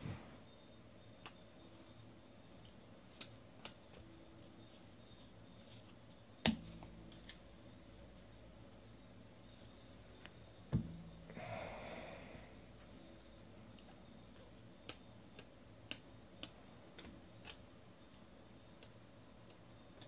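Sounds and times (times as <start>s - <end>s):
soft rustle of card stack: 4.7s - 7.4s.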